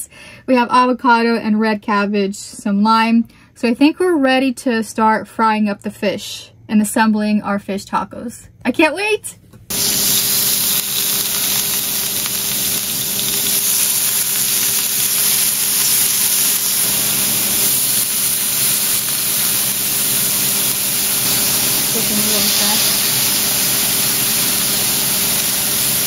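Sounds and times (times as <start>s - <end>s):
fish sizzling in oil: 9.7s - 26.0s.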